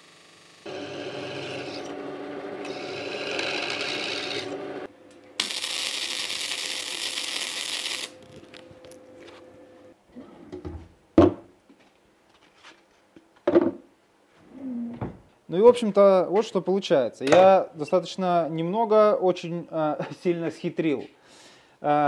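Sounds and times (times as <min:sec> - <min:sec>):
grinder grinding steel: 0:00.0 - 0:09.4
arc welding hiss: 0:05.4 - 0:08.7.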